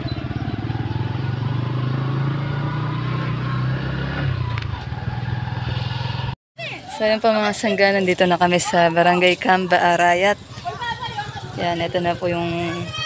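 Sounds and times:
motorcycle engine running: 0.0s - 6.4s, 8.9s - 13.0s.

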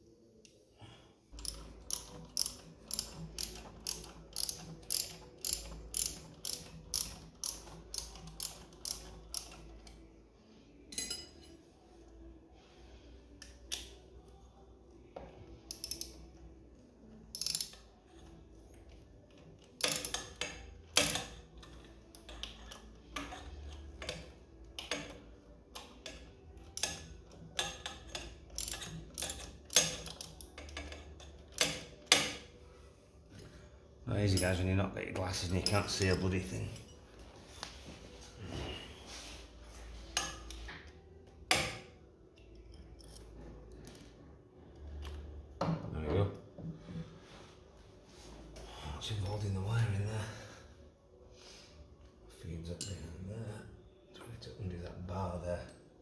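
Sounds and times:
socket ratchet clicking: 1.4s - 10.0s, 15.7s - 16.3s, 17.3s - 17.9s, 19.8s - 23.4s, 25.8s - 32.4s.

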